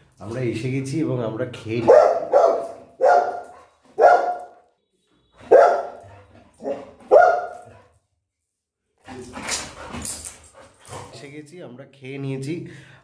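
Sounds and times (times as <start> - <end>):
dog barking: 1.8 - 4.7, 5.4 - 7.8.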